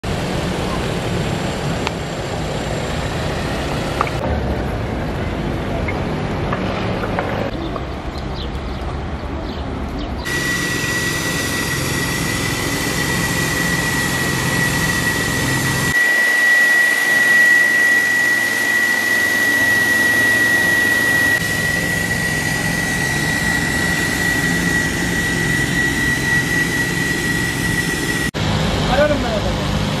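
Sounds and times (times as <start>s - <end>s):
sprayer blower whine: 0.0s - 7.2s, 10.2s - 30.0s
rushing air: 10.3s - 30.0s.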